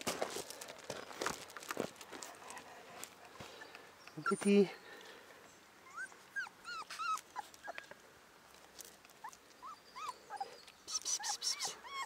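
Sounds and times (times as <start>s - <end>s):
puppy whimpering: 5.8s - 8.0s, 9.2s - 12.0s.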